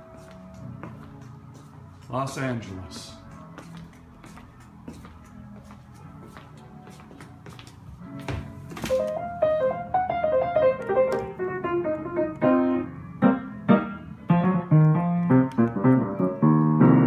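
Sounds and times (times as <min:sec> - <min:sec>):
grand piano playing: 0:00.0 - 0:04.2, 0:07.9 - 0:17.0.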